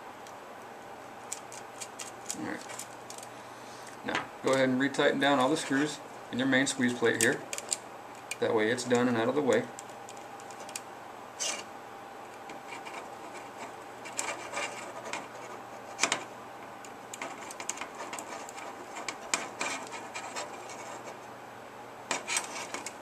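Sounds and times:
hands rubbing plastic parts: 1.2 - 3.3, 7.2 - 10.8, 12.4 - 16.3, 17.1 - 21.2, 22.1 - 23.0.

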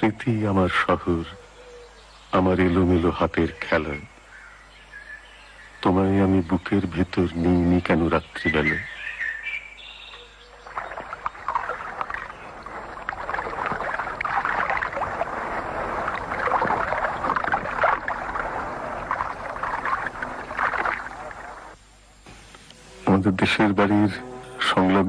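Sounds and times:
water splashing and lapping: 10.5 - 21.8.

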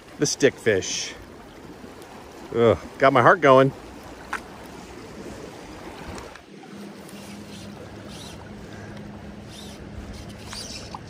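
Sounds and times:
faint steady hum: 0.0 - 11.0
river current running: 0.0 - 11.0.

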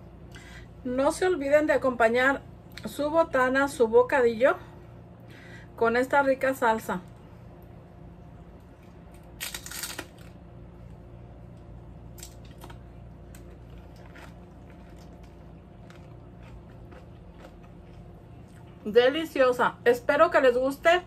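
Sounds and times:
low room hum: 0.0 - 21.0
crunchy rustle: 8.8 - 10.4, 12.4 - 18.6.

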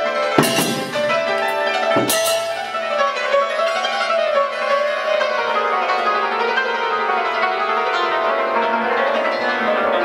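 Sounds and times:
hammered dulcimer tremolo: 0.0 - 10.0
small hand cymbals clashing: 0.4 - 3.0.

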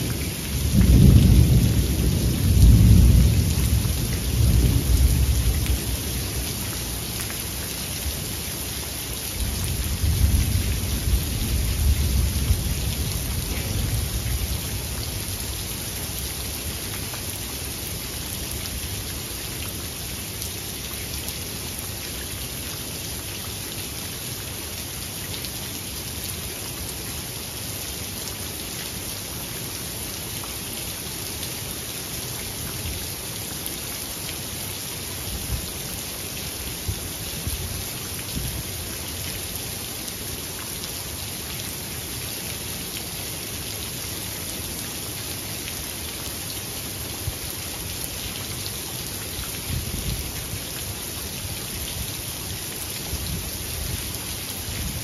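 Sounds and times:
steady rain falling: 0.0 - 55.0.

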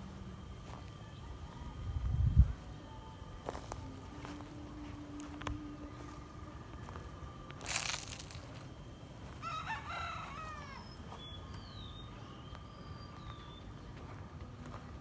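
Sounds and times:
rooster crowing: 9.2 - 11.2.

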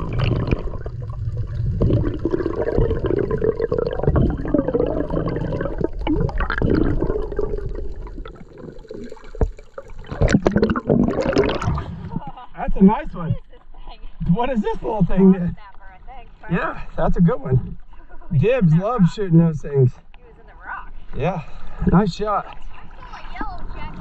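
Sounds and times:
underwater rushing and gurgling: 0.0 - 13.4, 21.4 - 24.0.

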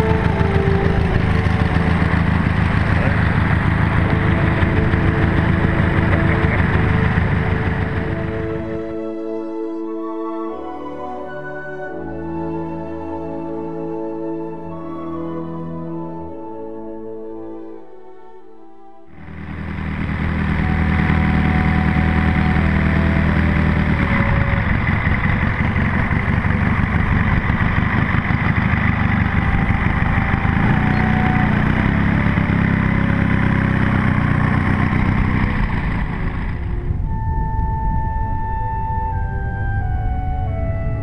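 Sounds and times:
model aircraft engine running: 0.0 - 10.6, 19.1 - 41.0.

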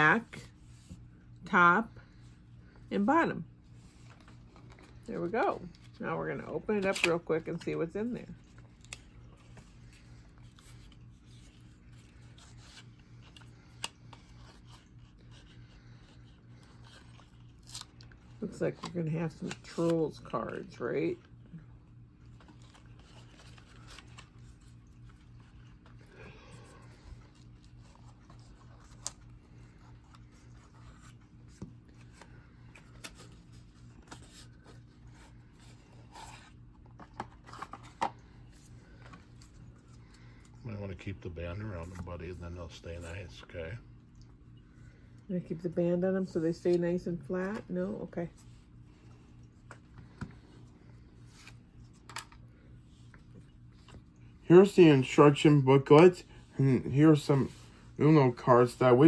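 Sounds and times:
playing cards rustling: 3.7 - 7.8, 8.4 - 20.7, 22.2 - 40.5, 47.5 - 59.0.

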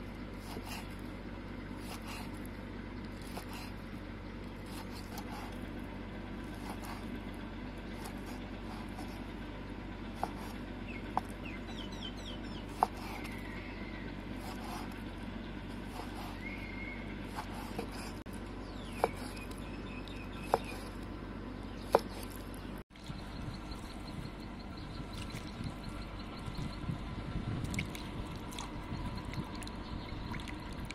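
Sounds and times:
knife slicing raw meat: 0.4 - 1.0, 1.8 - 2.4, 6.5 - 7.1, 10.2 - 10.6, 12.7 - 13.4, 17.3 - 18.2, 19.0 - 19.6, 20.4 - 21.0, 21.9 - 22.4.

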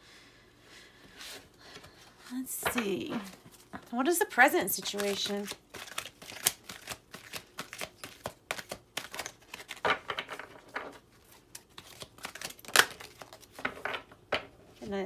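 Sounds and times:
cards being shuffled: 4.4 - 14.0.

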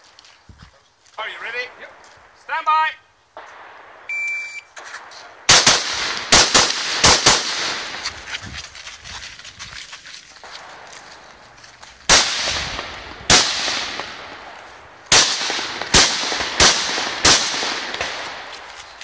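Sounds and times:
footsteps on concrete: 0.0 - 1.2, 7.7 - 13.1, 17.9 - 19.0
rifle shots echoing: 3.4 - 8.1, 12.1 - 19.0.

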